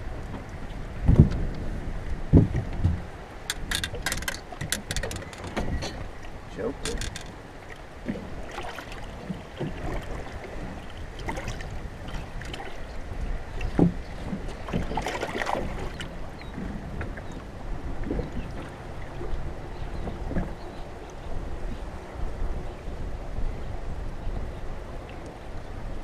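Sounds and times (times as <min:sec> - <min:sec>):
wind on microphone: 0:00.0 - 0:08.5, 0:09.1 - 0:26.0
water slapping boat hull: 0:00.0 - 0:21.2
knocks and splashes: 0:02.3 - 0:07.4, 0:08.0 - 0:12.8, 0:13.6 - 0:17.2.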